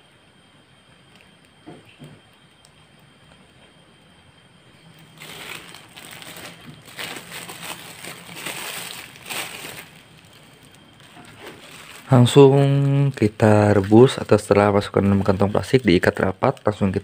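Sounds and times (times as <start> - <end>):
plastic bag crinkling: 4.8 - 17.0.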